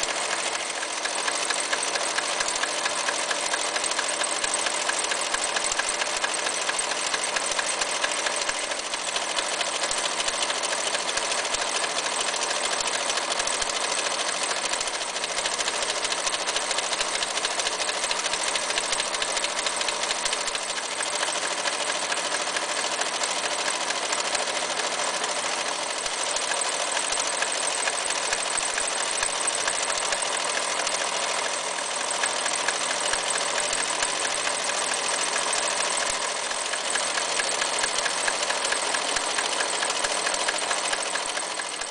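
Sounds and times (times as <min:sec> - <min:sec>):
sewing machine running: 0:00.0 - 0:41.9.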